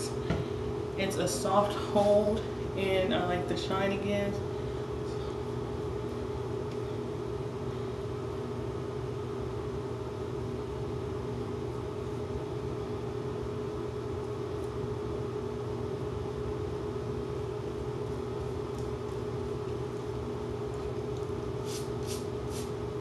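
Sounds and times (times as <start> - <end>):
machine hum: 0.0 - 23.0
hiss: 21.6 - 22.7.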